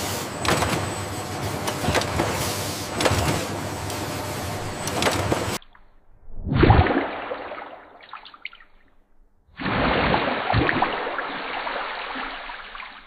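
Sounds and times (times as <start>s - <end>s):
rushing water splashing in a trough: 9.6s - 13.0s.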